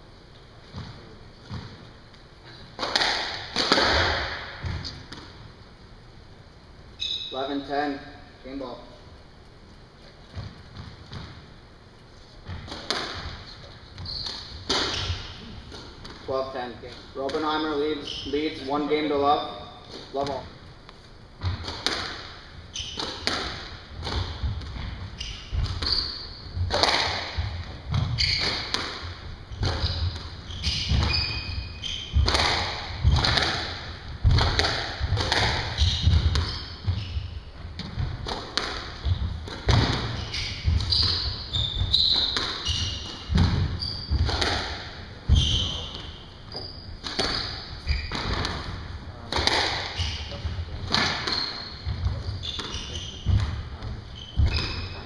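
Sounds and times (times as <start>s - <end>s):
squash ball striking racket and walls: 0.7s - 1.9s, 2.5s - 5.5s, 10.3s - 11.6s, 12.4s - 20.6s, 21.4s - 55.0s
shoes squeaking on wooden floor: 12.2s - 16.0s, 16.7s - 20.4s, 22.5s - 55.0s
footsteps thudding: 32.1s - 42.5s.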